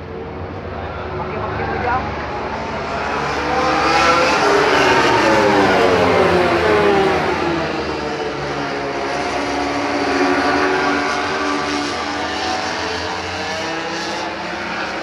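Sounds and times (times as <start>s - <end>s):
racing motorcycles passing: 0.0s - 15.0s.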